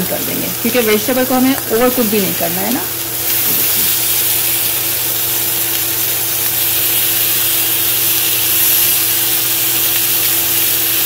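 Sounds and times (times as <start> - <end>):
skewers sizzling on grill pan: 0.0 - 11.0
steady low hum: 0.0 - 11.0.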